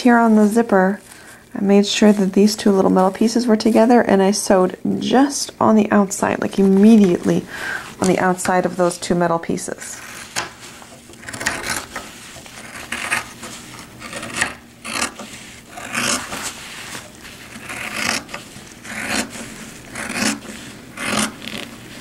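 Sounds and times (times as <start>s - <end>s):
fabric rasping and rubbing: 9.8s - 22.0s.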